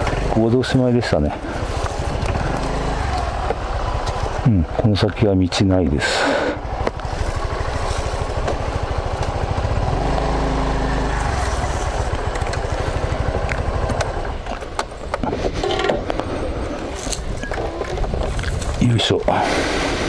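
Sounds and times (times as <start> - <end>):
scooter engine running: 0.0 - 0.8, 1.4 - 4.6, 6.2 - 15.3.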